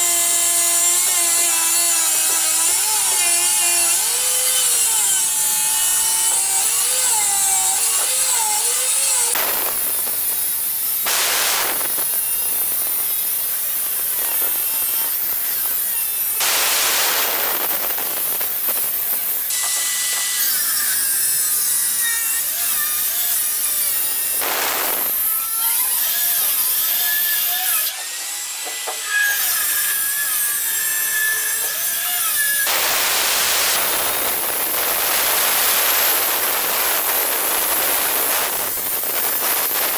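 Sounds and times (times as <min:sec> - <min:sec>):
blade grinding stone: 0:00.0 - 0:39.9
stone cutter motor whine: 0:00.0 - 0:39.9.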